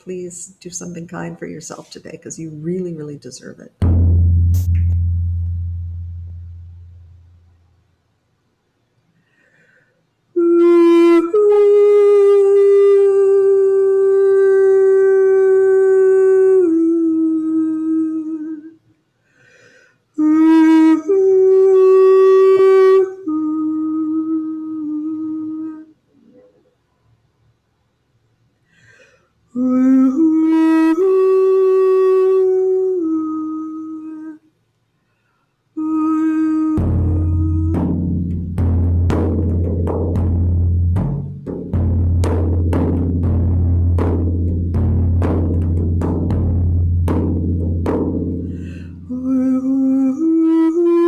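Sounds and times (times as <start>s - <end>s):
frame drum beats: 3.8s - 7.5s, 36.8s - 49.2s.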